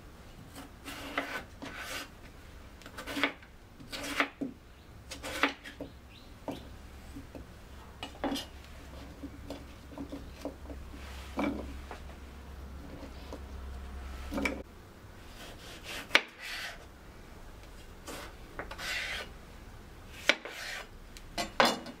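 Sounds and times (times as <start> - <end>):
knife slicing potato on cutting board: 0.5 - 2.1, 2.9 - 4.5, 5.1 - 5.8, 15.3 - 16.8, 18.0 - 19.3, 20.1 - 20.9.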